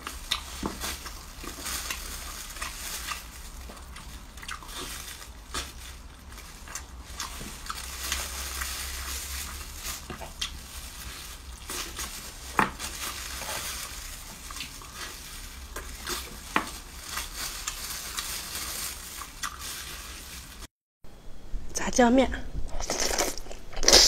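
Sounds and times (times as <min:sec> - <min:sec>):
person biting and chewing: 0:00.0 - 0:09.1, 0:09.7 - 0:16.6, 0:19.2 - 0:19.9, 0:22.7 - 0:24.0.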